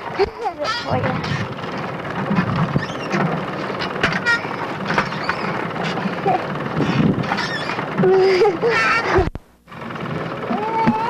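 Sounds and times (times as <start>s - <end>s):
faint voices: 0.0s - 1.6s
steady rumbling noise: 0.0s - 11.0s.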